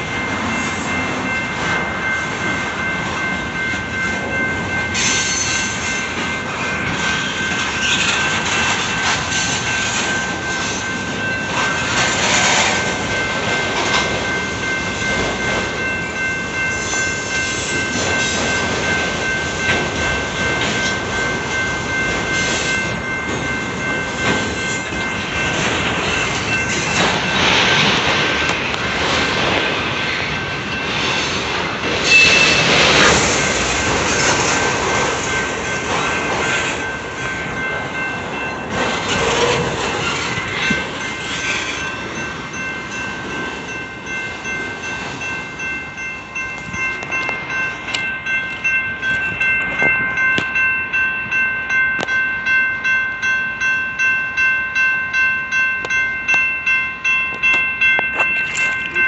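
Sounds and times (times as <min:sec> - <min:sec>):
train wheels rumbling on rail: 0:00.0 - 0:59.0
high wheel squeal: 0:04.9 - 0:12.9, 0:32.0 - 0:33.7.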